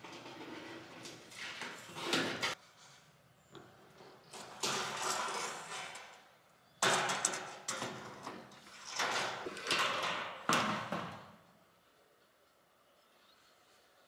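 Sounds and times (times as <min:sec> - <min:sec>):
sheet metal scraping and rattling: 0:00.0 - 0:02.6, 0:04.4 - 0:06.2.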